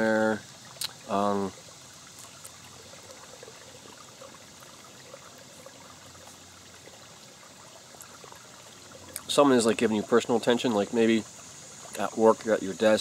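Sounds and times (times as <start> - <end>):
stream trickling: 0.0 - 13.0.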